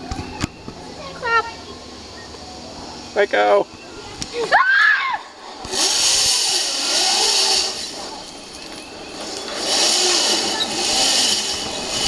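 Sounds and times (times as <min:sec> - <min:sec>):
pulley whirring along cable: 0:05.6 - 0:12.0.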